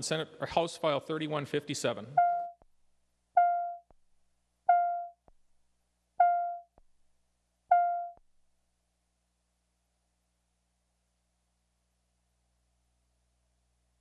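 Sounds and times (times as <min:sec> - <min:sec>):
pitched chime tone: 0:02.2 - 0:02.6, 0:03.4 - 0:03.9, 0:04.7 - 0:05.2, 0:06.2 - 0:06.7, 0:07.7 - 0:08.2.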